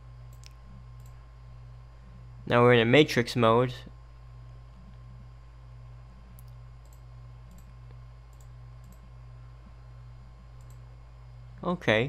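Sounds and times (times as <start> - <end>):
low electrical hum: 0.0 - 12.0
computer mouse clicks: 0.3 - 1.2, 6.4 - 9.1, 10.6 - 10.8.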